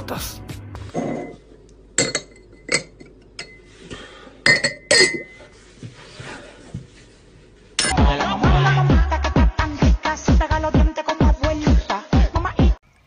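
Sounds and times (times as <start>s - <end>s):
glasses clinking: 0.9s - 1.4s, 2.0s - 3.7s, 4.4s - 5.5s
electronic dance music: 7.9s - 12.8s.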